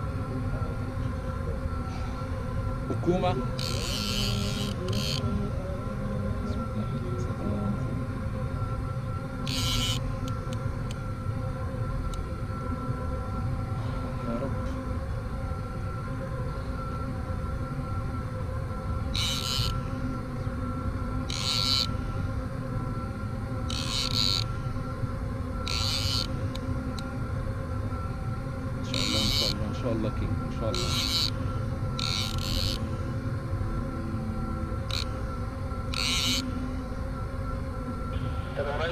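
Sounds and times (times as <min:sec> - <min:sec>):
faint steady hum: 0:00.0 - 0:38.9.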